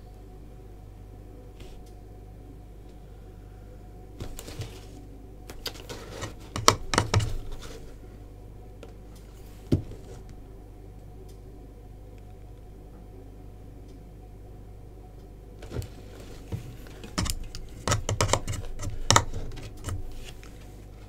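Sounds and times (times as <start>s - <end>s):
steady low hum: 0.0s - 21.0s
paintbrush knocking against pots: 6.0s - 7.8s, 16.5s - 20.2s.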